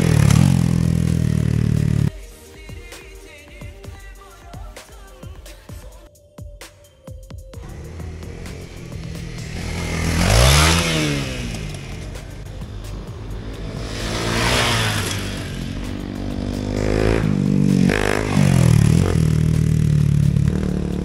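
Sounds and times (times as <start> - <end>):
motorcycles revving hard: 0.0 - 2.1, 7.6 - 21.0
background music: 0.0 - 21.0.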